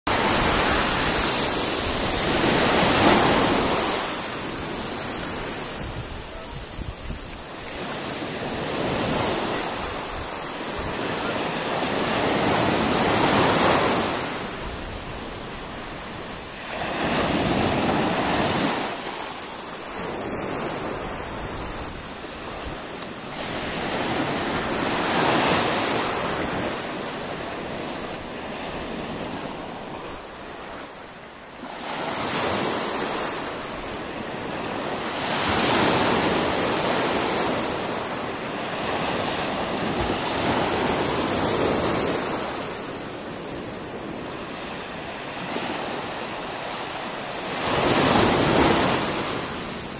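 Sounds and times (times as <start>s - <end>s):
sea waves breaking on beach: 0.1s - 49.9s
wind buffeting microphone: 0.2s - 11.1s.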